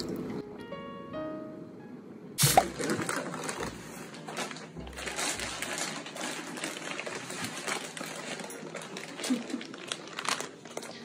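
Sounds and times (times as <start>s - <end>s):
rapid clicking and rustling: 2.8s - 11.0s.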